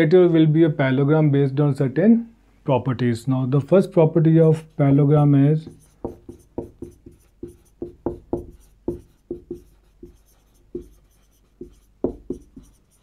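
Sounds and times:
marker writing on whiteboard: 0:04.6 - 0:13.0.

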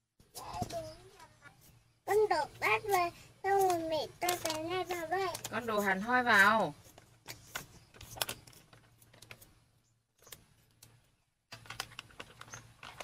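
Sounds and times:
small hard objects clicking: 0:02.8 - 0:05.9, 0:10.2 - 0:13.0.

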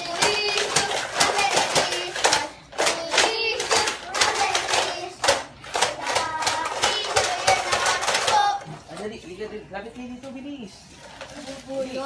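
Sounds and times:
sharp claps or knocks: 0:00.0 - 0:08.6.

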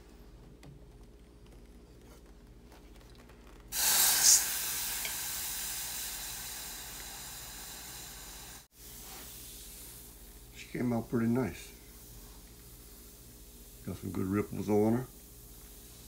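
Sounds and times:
hot metal hissing in water: 0:03.7 - 0:10.3.

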